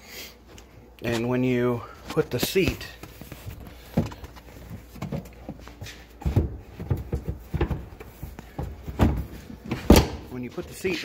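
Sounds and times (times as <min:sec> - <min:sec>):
seat knocking and rattling: 0:06.2 - 0:10.2.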